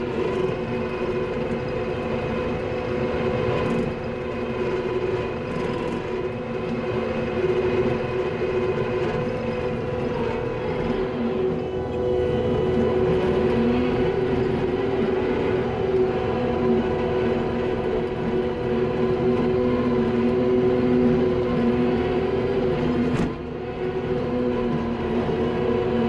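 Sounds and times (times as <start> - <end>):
diesel engine droning with whine: 0.0 - 26.0.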